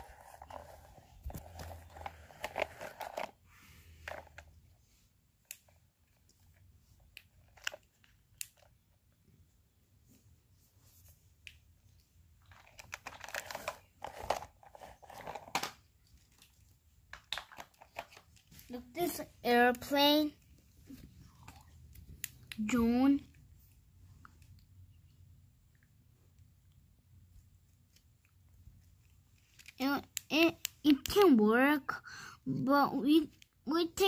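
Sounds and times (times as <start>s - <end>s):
plastic toy clicking and rustling: 12.4s - 18.4s.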